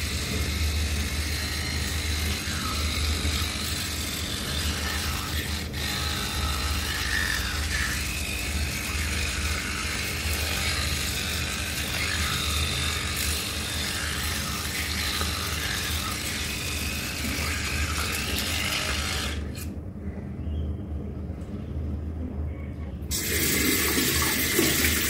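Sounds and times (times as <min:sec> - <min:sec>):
brush head scrubbing teeth: 0:00.0 - 0:19.7
electric toothbrush motor hum: 0:00.0 - 0:19.8, 0:23.1 - 0:25.0.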